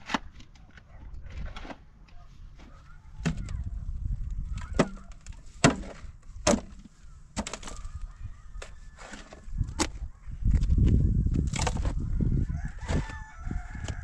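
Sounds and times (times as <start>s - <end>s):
stones tossed into metal wheelbarrow: 4.5s - 8.0s, 8.6s - 12.0s
pickaxe striking stony soil: 5.6s - 6.8s.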